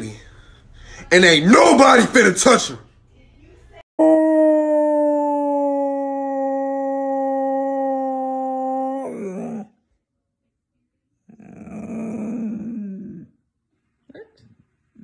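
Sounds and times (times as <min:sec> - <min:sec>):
dog howling: 0:04.0 - 0:09.7, 0:11.3 - 0:13.4.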